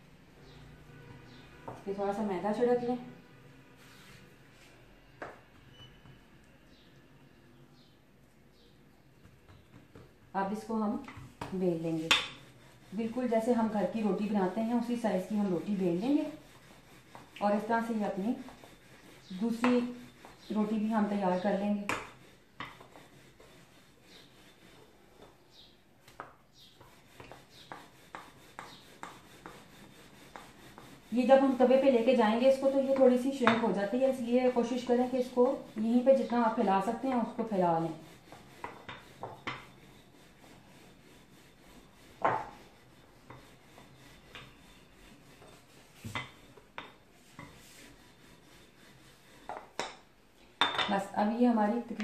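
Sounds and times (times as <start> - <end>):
rolling pin rolling dough: 8.2 - 52.0
rolling pin knocking on counter: 11.0 - 12.4, 21.8 - 23.0, 32.9 - 33.8, 38.3 - 39.7, 42.2 - 42.6.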